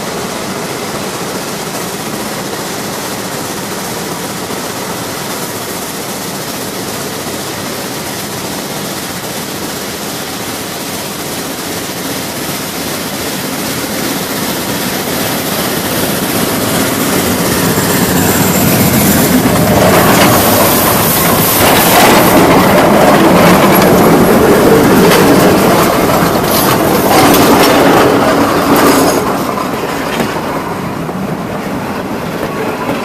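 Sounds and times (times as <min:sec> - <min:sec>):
steam locomotive passing: 0:00.0 - 0:33.0
wheels clattering over rails: 0:13.2 - 0:31.2.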